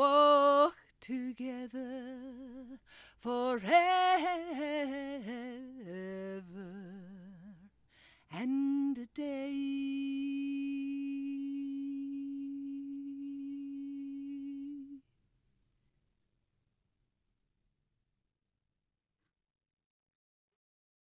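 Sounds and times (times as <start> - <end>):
woman humming: 9.8 - 15.0.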